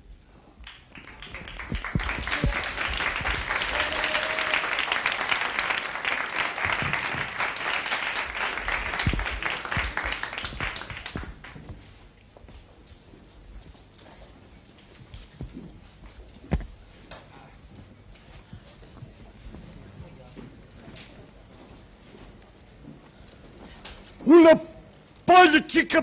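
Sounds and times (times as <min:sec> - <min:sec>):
audience applauding: 0:00.6 - 0:11.7.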